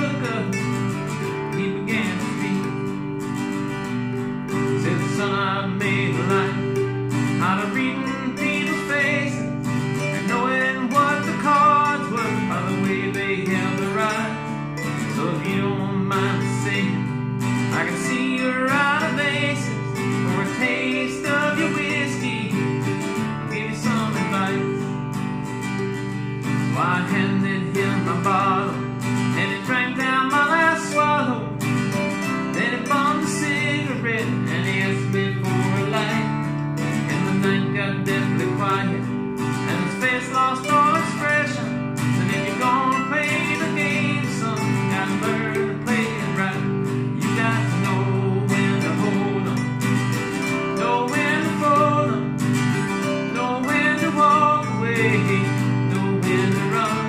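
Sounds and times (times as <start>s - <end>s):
acoustic guitar strumming: 0.0s - 57.0s
man singing: 0.0s - 57.0s
mandolin picking: 0.0s - 57.0s.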